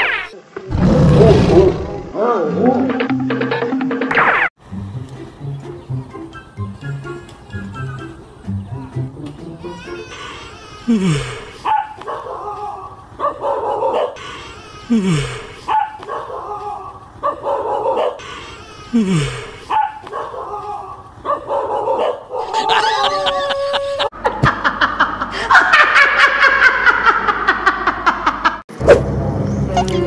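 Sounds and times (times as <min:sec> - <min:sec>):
dog barking and yelping: 0:11.6 - 0:14.2, 0:15.7 - 0:18.3, 0:19.7 - 0:24.1
woman laughing loudly: 0:22.4 - 0:28.6.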